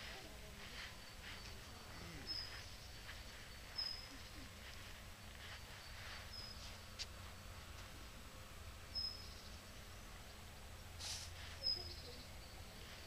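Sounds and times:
low background hum: 0.0s - 13.0s
short rustle: 11.0s - 11.9s.

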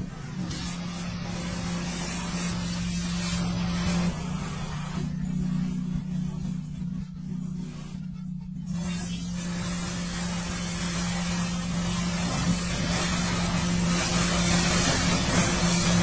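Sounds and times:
steady low hum: 0.0s - 16.0s
water spraying on a bus: 0.0s - 16.0s.

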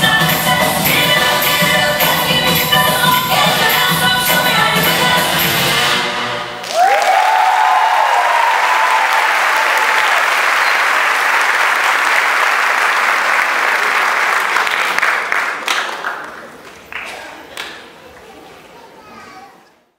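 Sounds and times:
audience cheering: 6.6s - 14.7s
audience applauding: 6.6s - 17.7s.

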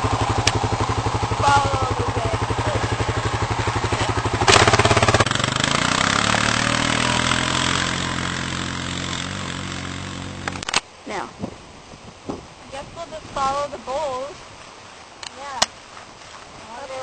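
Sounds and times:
quad bike engine chugging: 0.0s - 11.2s.

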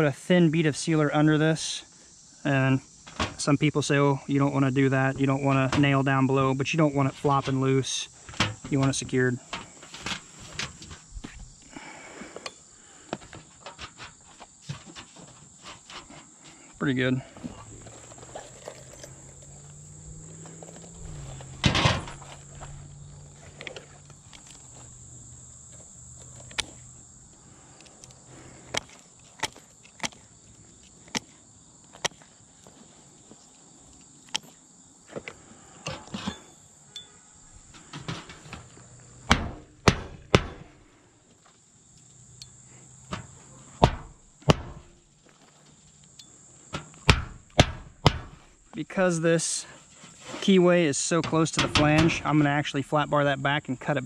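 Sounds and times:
high insect trill: 0.0s - 54.0s
knocks and scuffs on a roof: 37.7s - 40.8s, 43.1s - 45.5s, 46.7s - 48.6s.

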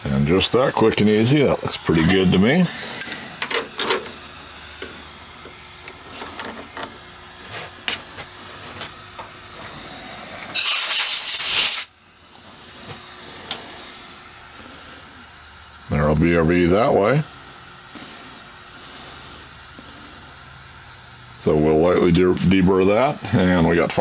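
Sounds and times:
compressed air blow gun hiss: 9.4s - 15.4s, 16.8s - 20.6s.

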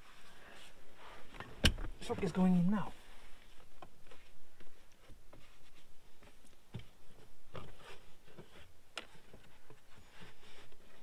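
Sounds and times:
hands knocking and rustling: 3.8s - 11.0s.

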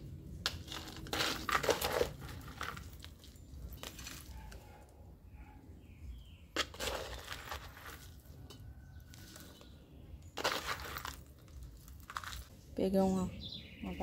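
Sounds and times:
soil scraping and crunching: 0.0s - 4.7s, 6.2s - 12.7s.

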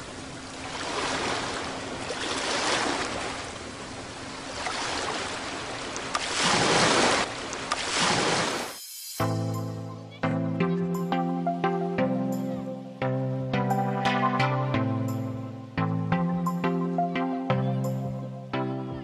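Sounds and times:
ocean waves hissing: 0.0s - 9.7s
music: 8.8s - 19.0s.

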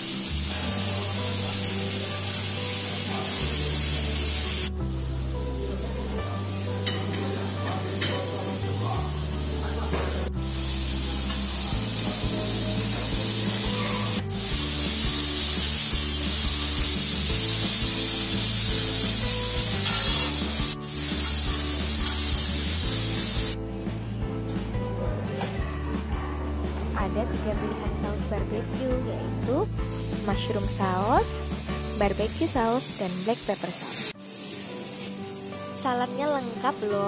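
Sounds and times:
meat sizzling on griddle: 0.0s - 5.2s, 6.8s - 23.6s, 29.8s - 37.0s
background music with bass: 0.0s - 32.8s.

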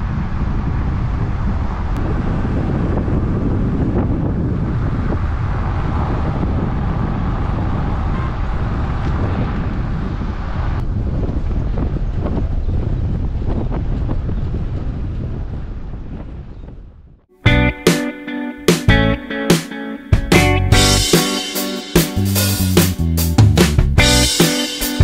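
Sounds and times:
wind buffeting microphone: 0.0s - 17.3s.

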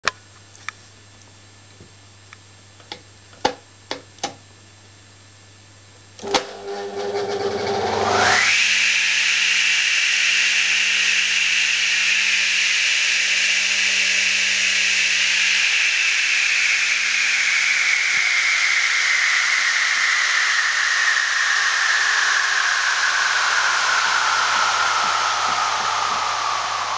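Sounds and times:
electric saw motor whirring: 6.6s - 26.9s.

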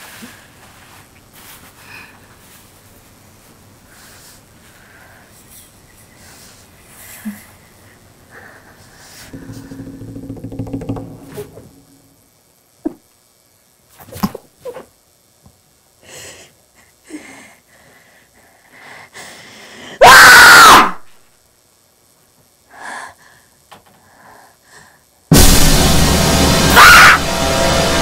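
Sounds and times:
woman screaming: 20.0s - 21.0s, 26.7s - 27.2s
loud music: 25.3s - 28.0s.

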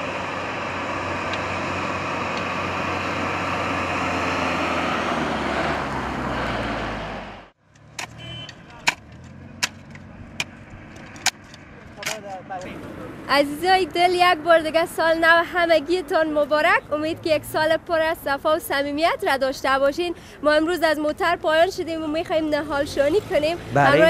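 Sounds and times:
car passing close by: 0.0s - 8.5s
road traffic: 0.0s - 24.0s.

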